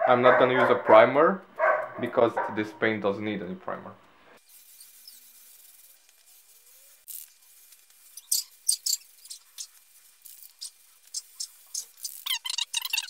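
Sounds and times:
spray paint can hissing bursts: 4.4s - 13.0s.

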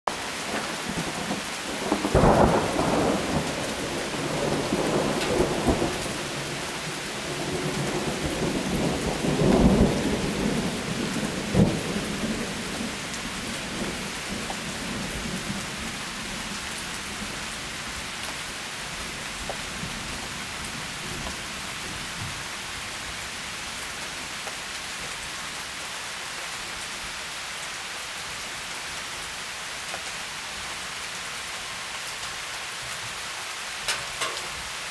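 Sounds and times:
steady rain falling: 0.1s - 34.9s
thunder rumbles: 0.2s - 17.3s
thunder crack: 1.9s - 5.9s.

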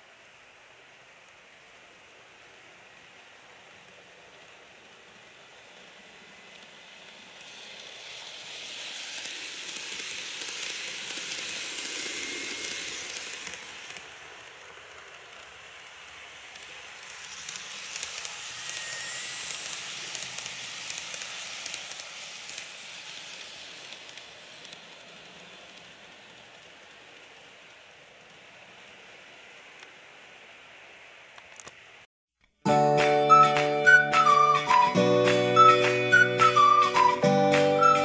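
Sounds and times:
model trains running on track: 0.0s - 31.7s, 33.3s - 38.0s
light clicks at rail joints: 5.7s - 12.2s, 13.0s - 18.4s, 19.6s - 29.0s.

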